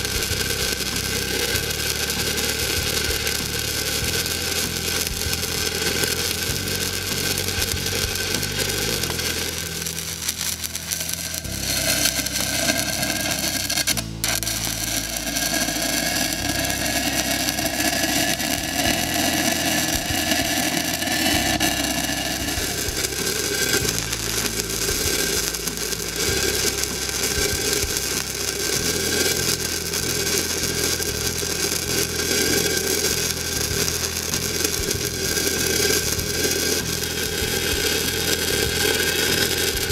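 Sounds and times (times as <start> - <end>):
welding arc crackling: 0.0 - 39.9.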